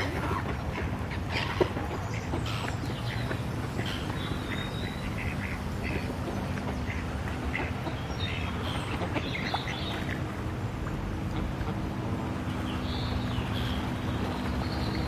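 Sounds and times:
gulls and ducks calling: 0.0s - 10.4s
low background noise: 0.0s - 15.0s.

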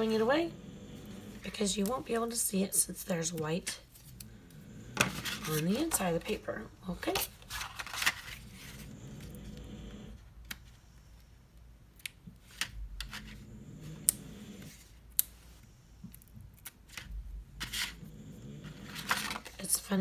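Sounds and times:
stiff paper folding and creasing: 7.0s - 9.3s, 18.7s - 19.7s.

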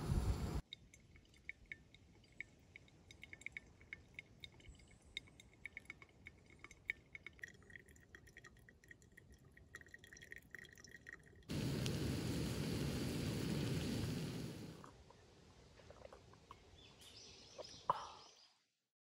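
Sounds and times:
coffee dripping into glass: 0.6s - 11.9s
water trickling onto coffee grounds: 0.6s - 15.0s.

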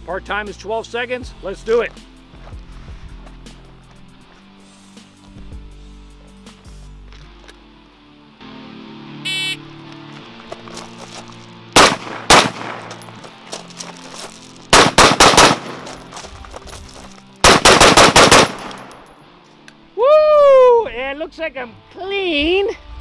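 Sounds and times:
shot timer beep: 9.3s - 9.6s
rifle gunshots: 11.8s - 13.0s, 14.7s - 16.1s, 17.4s - 19.0s.

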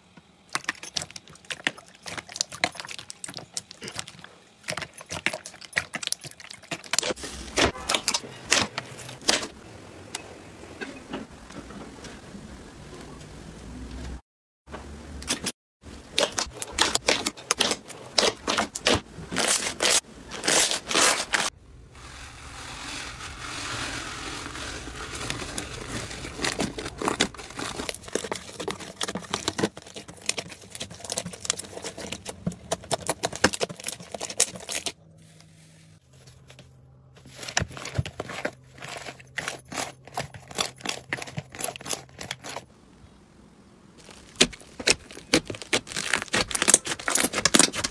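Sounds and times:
slime crackling and popping: 44.0s - 47.9s.

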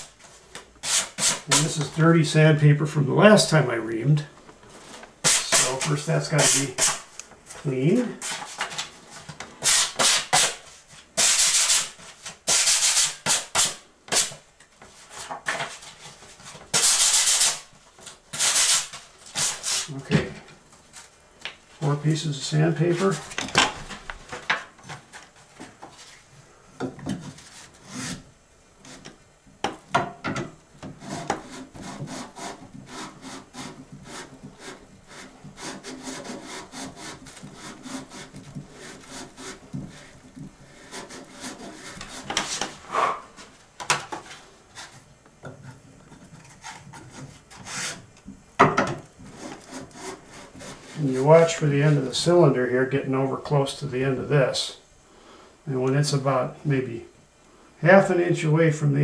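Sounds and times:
sandpaper rasping: 5.2s - 7.0s, 9.6s - 10.6s, 11.2s - 14.4s, 16.7s - 17.7s, 18.3s - 19.9s, 31.0s - 40.1s, 40.8s - 42.7s.

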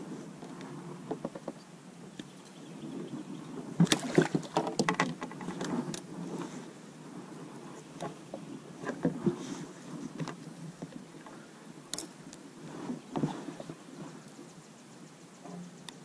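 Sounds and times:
fish thrashing and splashing: 3.8s - 4.9s.

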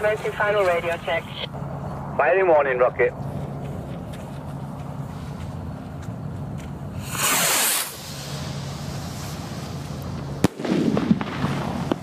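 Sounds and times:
steady low hum: 0.0s - 12.0s
rocket hissing whoosh: 7.0s - 12.0s.

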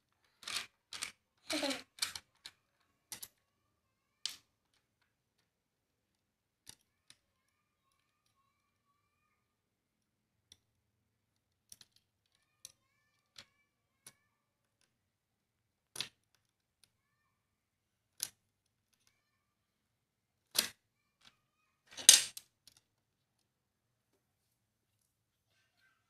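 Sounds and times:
plastic parts clicking: 0.2s - 3.4s.

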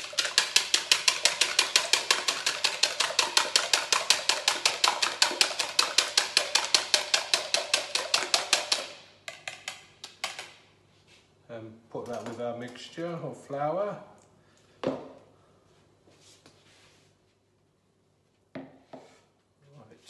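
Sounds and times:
whisk clicking against plastic jug: 0.0s - 10.5s.

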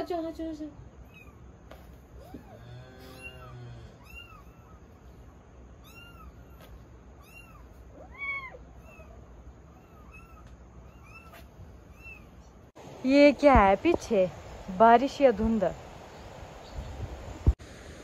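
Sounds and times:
kittens mewing: 1.0s - 12.7s.

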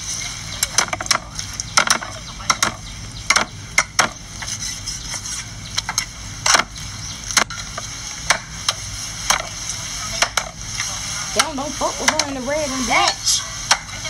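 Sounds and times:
steady high hiss: 0.0s - 14.0s
cleavers chopping on wooden blocks: 0.8s - 4.2s.

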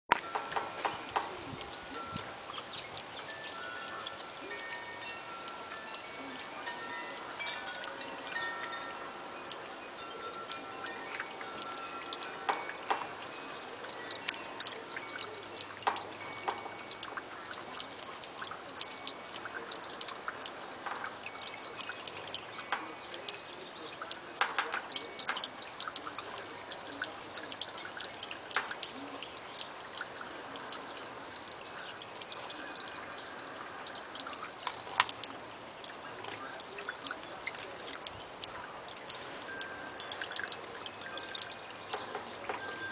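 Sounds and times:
water trickling over stones: 0.1s - 42.9s
bird chirps: 10.0s - 15.7s, 18.8s - 19.5s, 26.4s - 28.3s, 28.9s - 34.5s, 35.1s - 35.6s, 36.6s - 37.1s, 38.4s - 42.9s.

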